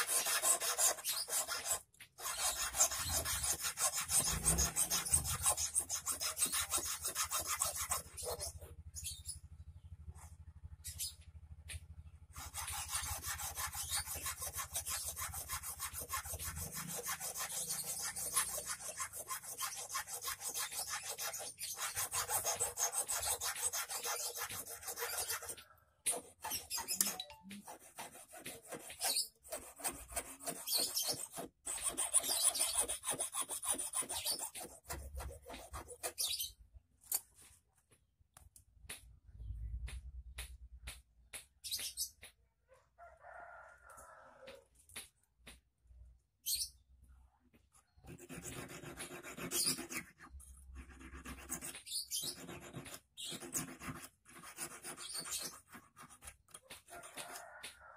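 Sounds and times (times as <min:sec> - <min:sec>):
hand file rasping on metal: 0:00.0 - 0:08.7, 0:12.4 - 0:36.5, 0:48.1 - 0:57.8.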